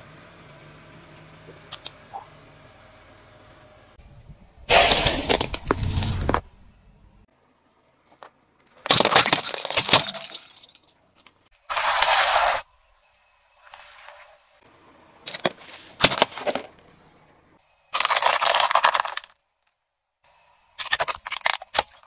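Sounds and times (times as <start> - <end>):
plastic and candy cracking under tyre: 18.0 - 19.8, 20.8 - 22.0.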